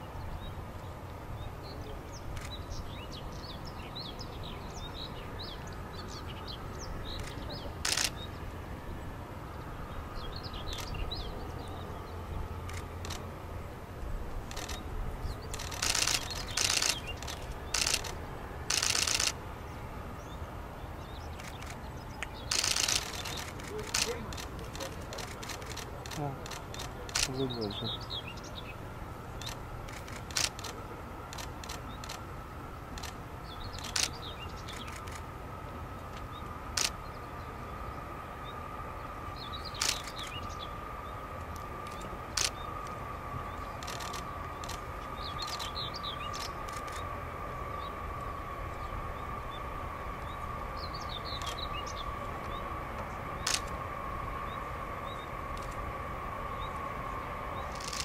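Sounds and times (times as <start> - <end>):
birds chirping: 0.0 - 32.3, 32.9 - 35.3, 36.0 - 53.8, 54.4 - 58.0
distant jet engines whining: 0.0 - 58.0
camera shutter clicks: 7.2 - 8.2, 14.5 - 14.8, 15.5 - 19.4, 22.5 - 27.4, 29.4 - 30.8, 33.8 - 34.1, 36.8 - 37.0, 39.8 - 40.4, 41.9 - 42.6, 43.8 - 44.8, 53.5 - 53.7, 57.8 - 58.0.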